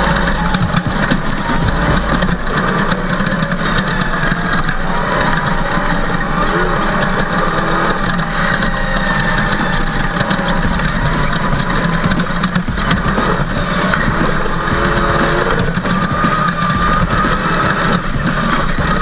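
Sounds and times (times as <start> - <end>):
engine running hard: 0.0 - 4.0, 8.2 - 19.0.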